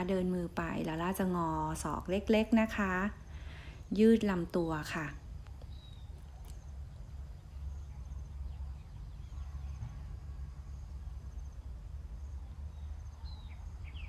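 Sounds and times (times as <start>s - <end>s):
steady low rumble: 0.0s - 14.0s
bird chirps and trills: 5.6s - 10.0s, 12.4s - 14.0s.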